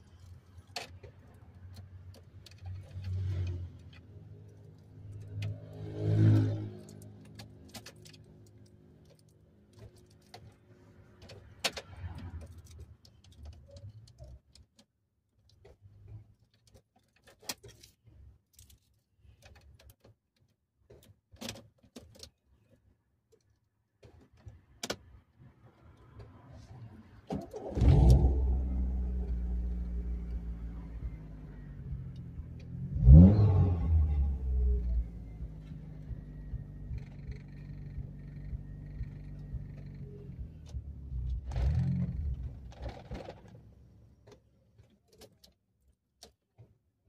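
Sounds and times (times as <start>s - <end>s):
car engine cranking and starting: 25.8s - 45.5s.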